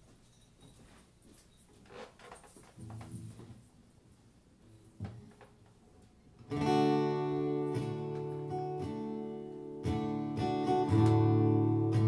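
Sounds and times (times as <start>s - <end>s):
acoustic guitar strumming chords: 6.4s - 12.0s.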